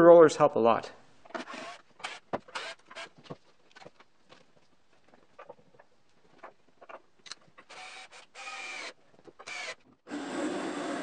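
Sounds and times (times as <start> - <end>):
cordless drill whirring: 1.4 - 3.1, 7.7 - 11.0
bandsaw running: 9.5 - 11.0.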